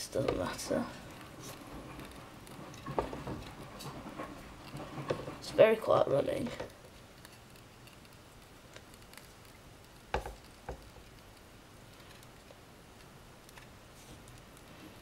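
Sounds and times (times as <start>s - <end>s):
faint low background noise: 0.0s - 15.0s.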